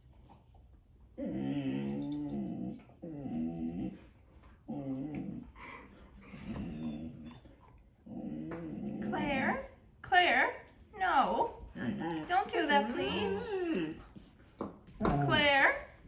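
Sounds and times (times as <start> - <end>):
dog growling low: 1.2 - 9.6, 11.6 - 14.2.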